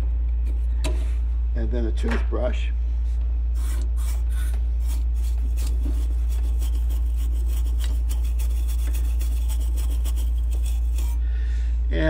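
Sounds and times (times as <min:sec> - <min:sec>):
steady low hum: 0:00.0 - 0:12.0
toothbrush scrubbing metal fins: 0:03.6 - 0:11.2.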